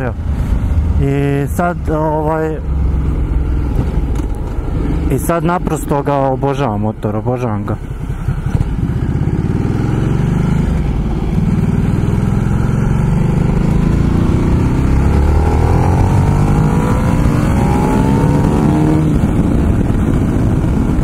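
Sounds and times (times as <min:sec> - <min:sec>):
motorcycle engine accelerating: 0:02.5 - 0:06.0, 0:07.9 - 0:21.0.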